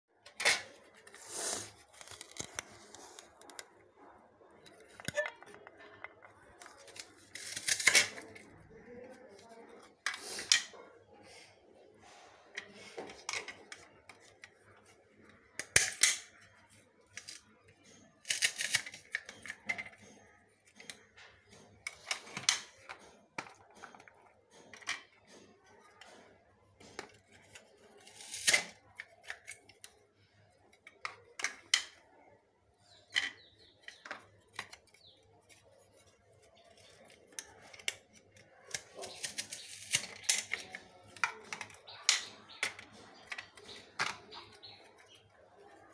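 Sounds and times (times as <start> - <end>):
handling onions and dry peel: 33.8 - 45.7
onion slicer snipping: 38.7 - 40.3.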